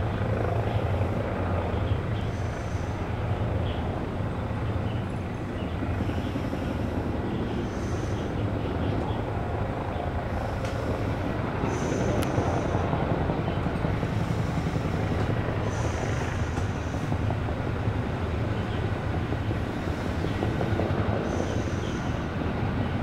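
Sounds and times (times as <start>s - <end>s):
helicopter rotors throbbing: 0.0s - 23.0s.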